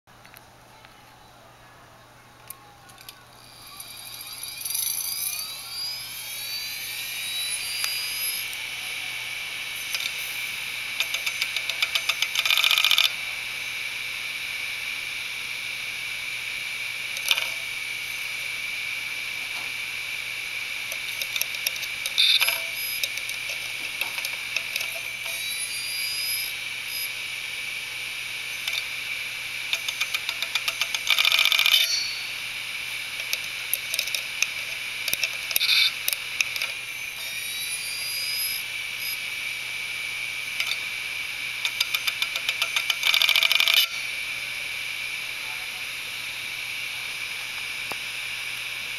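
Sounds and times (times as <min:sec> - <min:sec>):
spindle motor whine: 0:00.2 - 0:48.9
hard drive head clicking: 0:20.9 - 0:25.4, 0:33.2 - 0:36.8, 0:41.6 - 0:43.9.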